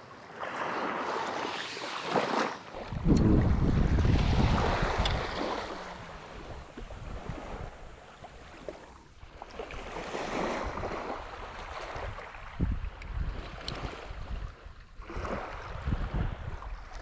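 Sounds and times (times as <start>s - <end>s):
small waves washing on sand: 0.0s - 17.0s
wind on microphone: 2.8s - 9.0s, 9.7s - 17.0s.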